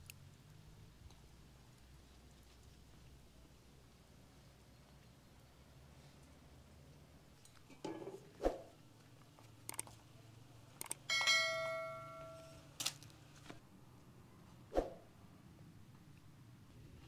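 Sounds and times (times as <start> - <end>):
struck metal ring: 11.1 - 12.7.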